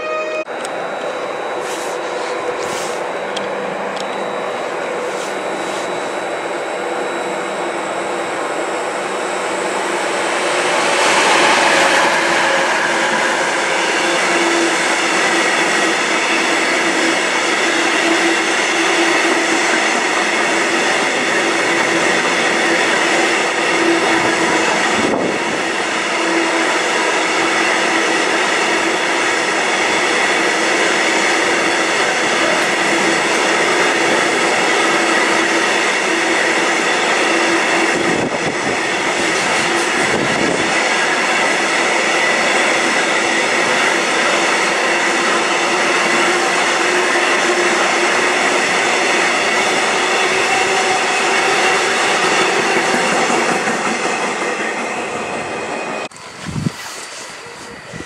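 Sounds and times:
train equipment hum and whine: 0.0 - 58.0
rush of noise: 0.7 - 17.6.

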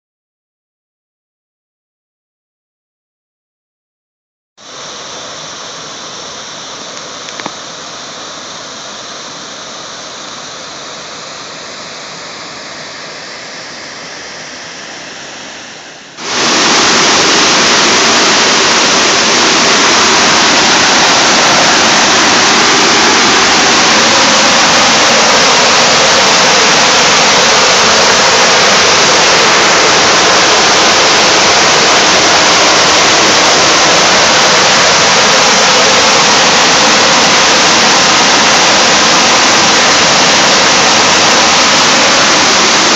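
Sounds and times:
water rushing through outlet: 4.7 - 42.9.

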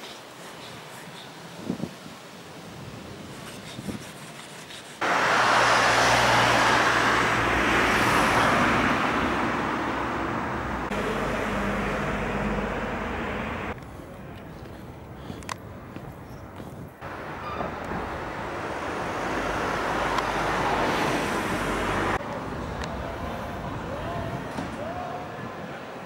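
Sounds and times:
low engine hum: 5.0 - 14.4
road traffic rush: 5.0 - 26.0.

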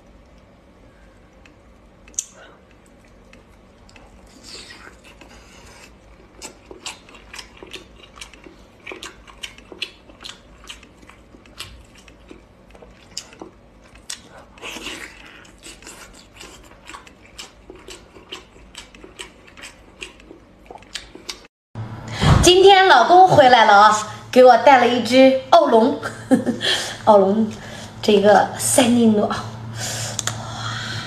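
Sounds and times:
wet biting and chewing: 1.2 - 21.5, 30.1 - 30.4
mouth clicks and smacks: 1.4 - 12.4, 30.1 - 30.4.

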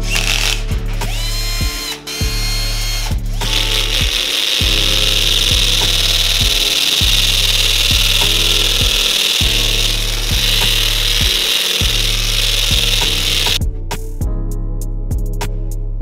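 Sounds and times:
power tool cutting: 0.0 - 13.6
background music with beat: 0.0 - 16.0.

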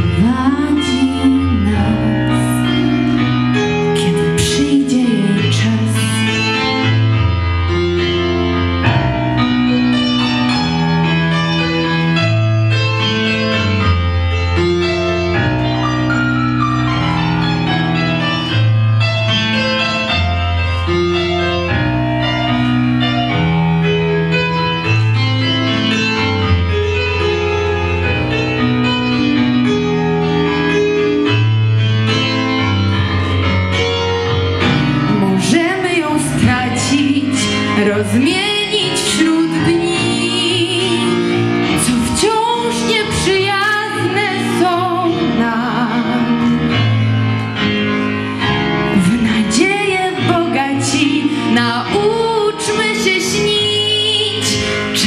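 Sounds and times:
woman singing with vibrato: 0.0 - 2.7, 4.0 - 6.3, 35.1 - 46.6, 48.9 - 55.0
piano playing slow chords: 0.0 - 55.0.

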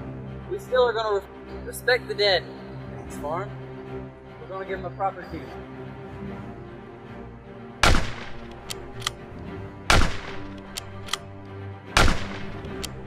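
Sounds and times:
gunshots: 7.8 - 9.1, 9.9 - 11.2, 12.0 - 12.9
short sharp clicks: 7.8 - 9.2, 9.9 - 11.2, 12.0 - 13.0.

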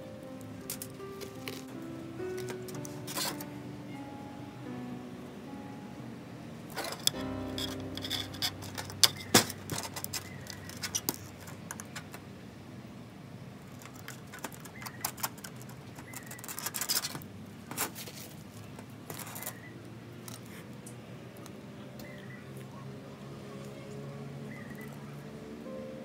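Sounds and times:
tools clicking and tapping: 0.7 - 1.7, 2.3 - 3.5, 6.7 - 12.2, 13.8 - 17.2
scraping: 6.7 - 12.2.

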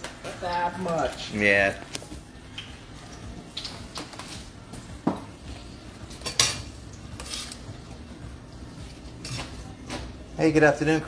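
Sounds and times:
spoon clinking on pots: 6.2 - 7.6.

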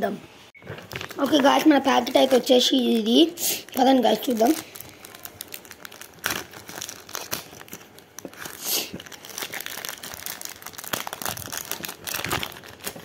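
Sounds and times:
card wrapper tearing and crinkling: 0.8 - 13.0.

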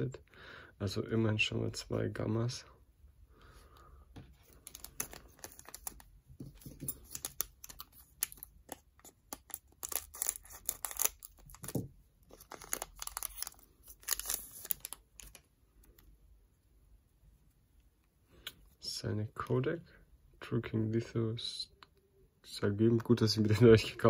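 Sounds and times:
foil pack crinkling: 4.6 - 6.1, 6.7 - 15.4.

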